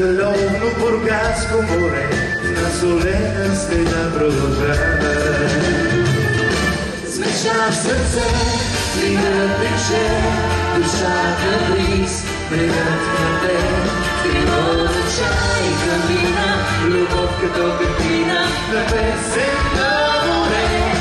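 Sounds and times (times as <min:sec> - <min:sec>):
instrumental band backing: 0:00.0 - 0:21.0
man and woman singing: 0:07.0 - 0:21.0.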